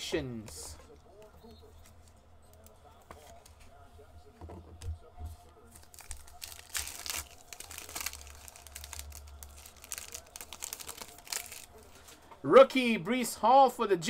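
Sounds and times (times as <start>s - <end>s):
foil wrapper tearing and crinkling: 5.8s - 12.0s.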